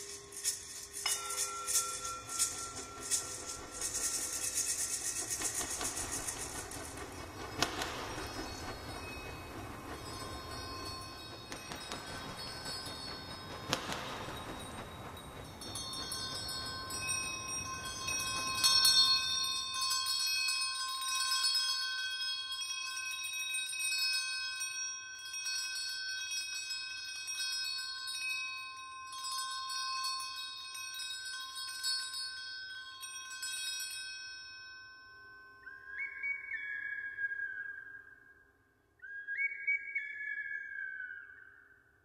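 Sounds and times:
handbell ringing: 0.0s - 6.4s, 15.6s - 35.6s.

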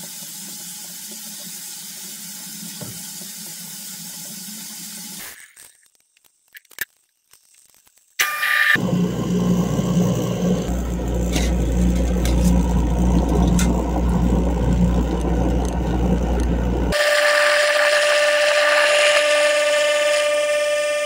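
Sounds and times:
garbage disposal motor hum: 8.2s - 21.0s
high-pitched whine: 8.2s - 21.0s.

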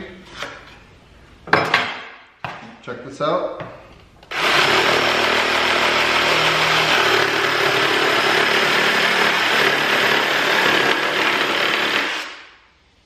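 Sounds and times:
jigsaw sawing wood: 4.3s - 12.4s.

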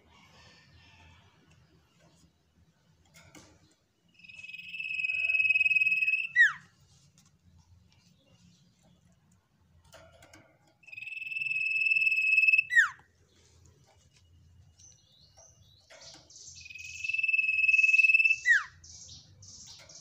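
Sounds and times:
bird whistled notes: 4.2s - 6.6s, 10.9s - 13.0s, 16.6s - 19.2s
short high bird chirps: 10.9s - 13.0s, 16.4s - 20.0s.

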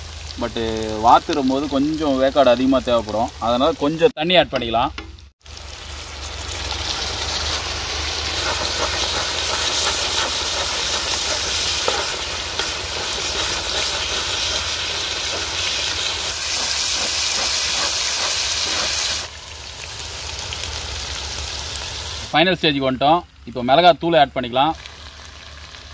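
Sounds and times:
water sizzling on hot pan: 0.0s - 4.2s, 5.0s - 22.5s, 24.6s - 25.9s
metal spatula scraping pan: 7.2s - 19.2s.

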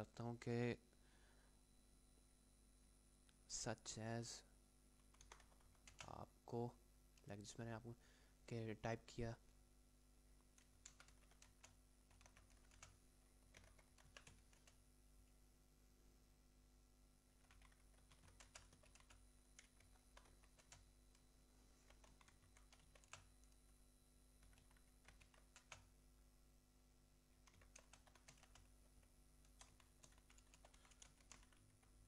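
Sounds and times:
typing on computer keyboard: 5.0s - 6.2s, 10.5s - 14.8s, 17.4s - 21.2s, 21.9s - 23.6s, 24.4s - 25.9s, 27.4s - 32.0s.

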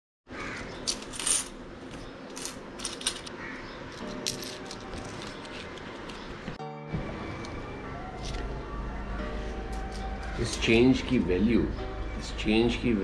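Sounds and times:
coins clinking on glass: 0.9s - 1.6s, 2.3s - 3.3s, 4.0s - 5.4s.

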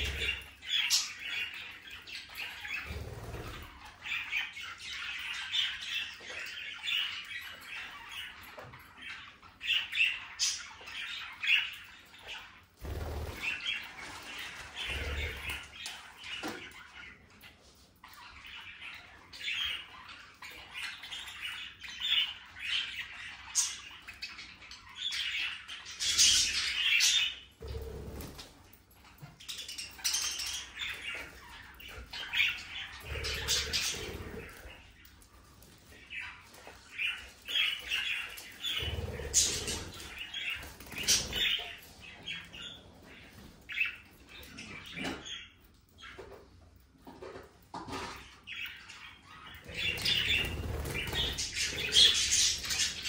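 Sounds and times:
budgerigars chirping: 29.5s - 34.9s, 35.9s - 46.3s, 48.4s - 53.0s.

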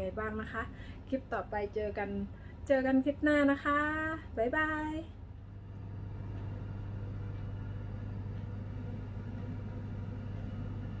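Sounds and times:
low mechanical hum: 0.0s - 11.0s.

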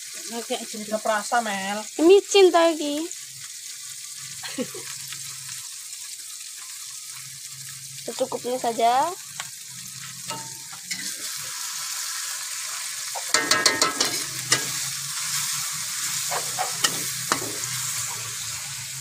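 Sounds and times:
paste sizzling in oil: 0.0s - 19.0s
metal spatula scraping wok: 9.9s - 11.5s, 13.0s - 18.6s
spatula knocking: 13.2s - 14.9s, 16.3s - 17.8s.

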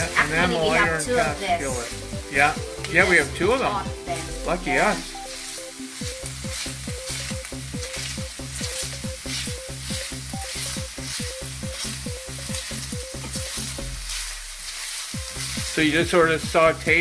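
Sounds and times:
onions sizzling in oil: 0.0s - 17.0s
spatula scraping a pan: 5.2s - 16.1s.

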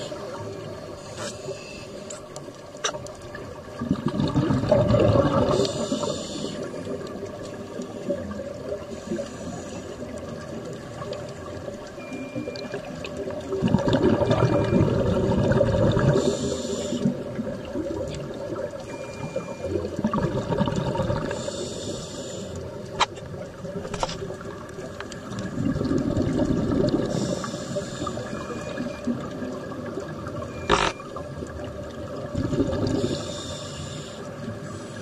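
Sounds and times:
bubbling underwater exhale: 3.6s - 7.4s, 8.0s - 22.8s, 25.2s - 35.0s
hiss of inhaled air: 5.6s - 6.7s, 16.2s - 17.1s, 21.3s - 22.6s, 27.1s - 28.2s, 33.0s - 35.0s
sharp clicks: 30.7s - 31.0s.

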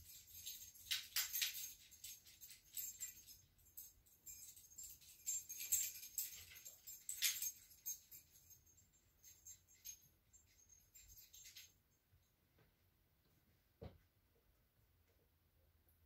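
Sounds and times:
metallic jingling: 0.0s - 11.9s.

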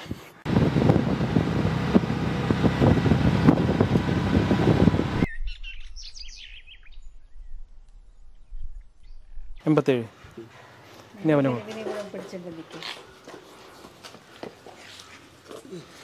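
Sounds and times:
vehicle engine and road noise: 0.4s - 5.3s.

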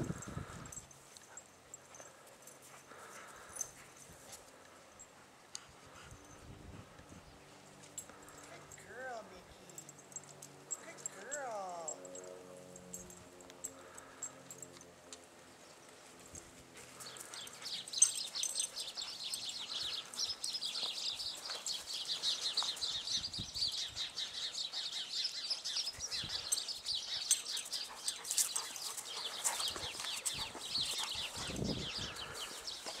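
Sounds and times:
small birds chirping: 0.1s - 33.0s.

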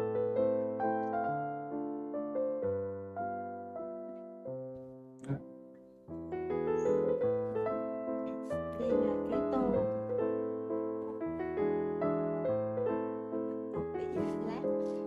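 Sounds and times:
gentle piano music: 0.0s - 15.0s.

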